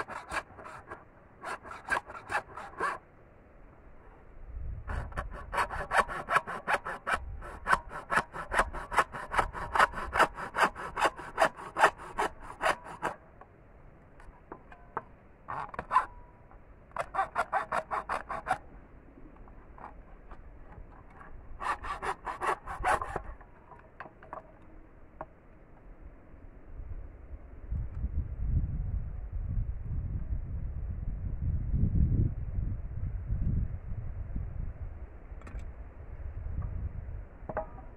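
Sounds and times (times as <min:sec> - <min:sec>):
hacksaw cutting bamboo: 0:00.0 - 0:03.0, 0:04.9 - 0:13.2, 0:15.5 - 0:16.1, 0:16.9 - 0:18.7, 0:21.1 - 0:24.4.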